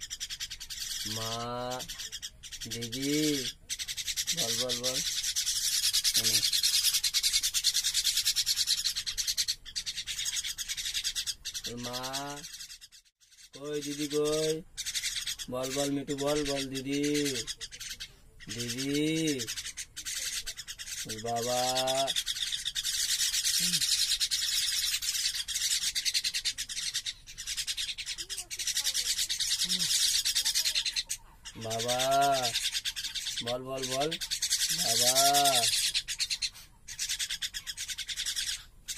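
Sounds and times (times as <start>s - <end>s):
bird chicks begging calls: 0.0s - 38.9s
young mynas begging chatter: 6.0s - 6.7s, 15.4s - 22.5s, 25.5s - 37.0s.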